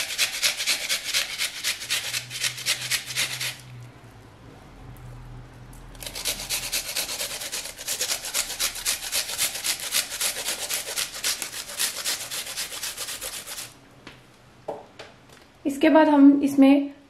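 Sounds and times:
onion grated on metal grater: 0:00.0 - 0:03.7, 0:06.0 - 0:13.8.

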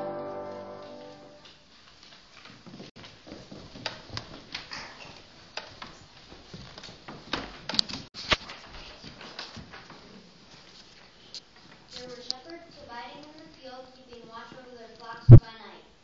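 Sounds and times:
children stepping on wooden floor: 0:00.8 - 0:10.5.

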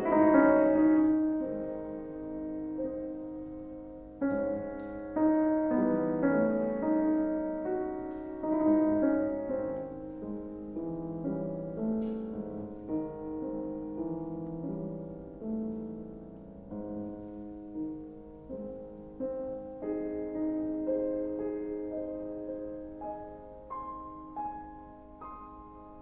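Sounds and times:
classical solo piano: 0:00.0 - 0:26.0.

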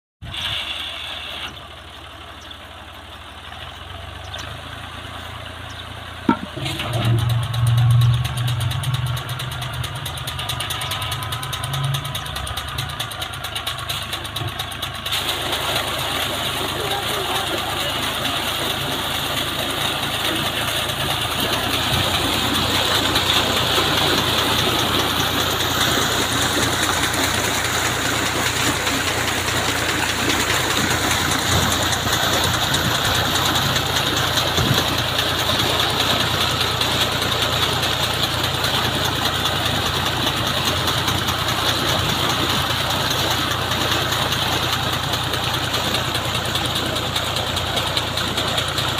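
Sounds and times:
tractor engine running: 0:00.2 - 0:48.9
water gushing into tank: 0:13.9 - 0:48.9.

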